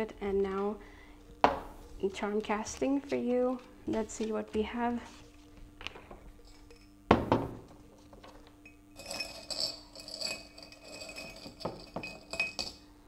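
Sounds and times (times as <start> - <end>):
ceramic cup knocking on wooden table: 1.4 - 1.7, 7.1 - 7.7.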